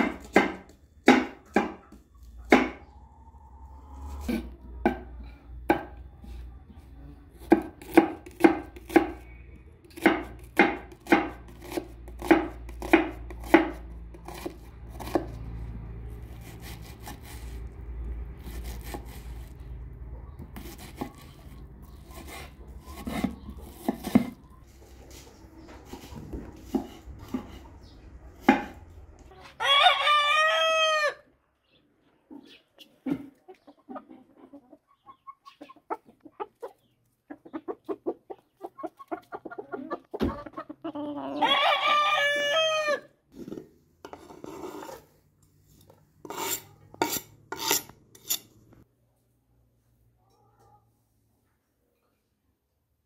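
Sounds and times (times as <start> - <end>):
knife chopping onion on wooden board: 0.0 - 2.8, 7.4 - 15.4, 20.4 - 21.2, 22.0 - 24.4, 25.9 - 27.7, 28.4 - 28.8
rooster crowing: 29.4 - 31.3, 41.2 - 43.1.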